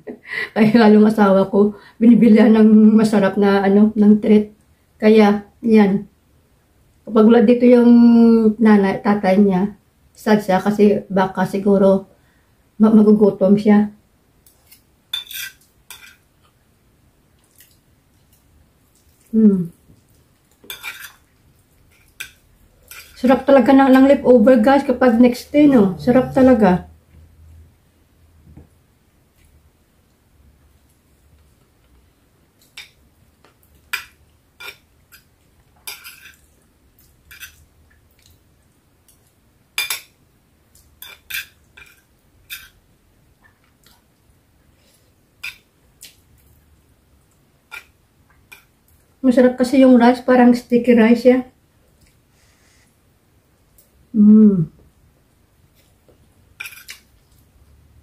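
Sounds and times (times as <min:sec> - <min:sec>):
cutlery scraping a paper plate: 0:14.7 - 0:16.2, 0:20.7 - 0:21.2, 0:41.0 - 0:42.8, 0:56.6 - 0:57.1
cutlery scraping paper plate: 0:14.7 - 0:16.2, 0:56.6 - 0:57.0
person humming mm: 0:54.1 - 0:54.8.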